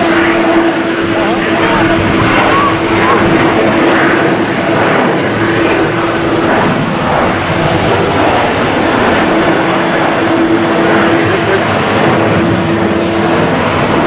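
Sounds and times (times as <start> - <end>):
jet engines at takeoff thrust: 0.0 - 14.0.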